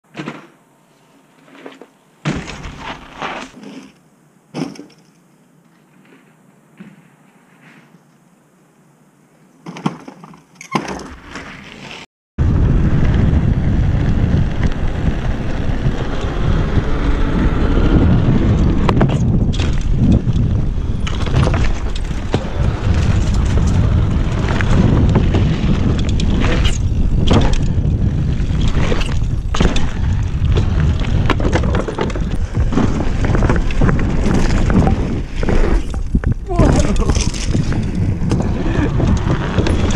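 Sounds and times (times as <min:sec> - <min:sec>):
wind buffeting microphone: 0:12.4 - 0:39.9
bike rattling and knocking: 0:17.8 - 0:39.9.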